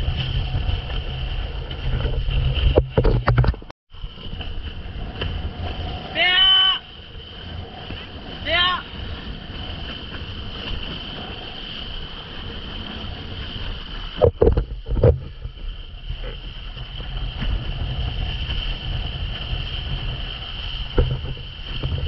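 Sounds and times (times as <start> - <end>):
water rushing under board: 0.0 - 22.0
wind buffeting microphone: 0.0 - 22.0
board slapping on water: 13.0 - 22.0.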